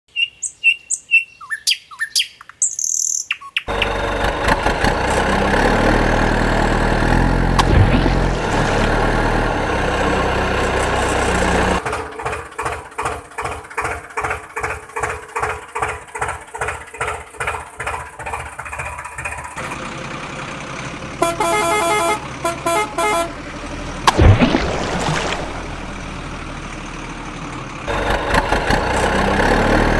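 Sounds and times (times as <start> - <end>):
birds chirping: 0.1 - 4.0
tractor engine chugging: 3.7 - 24.1, 25.6 - 29.9
heavy truck engine running: 3.7 - 24.4, 25.4 - 29.9
horn honking: 21.2 - 23.5
loud splash: 24.1 - 26.0.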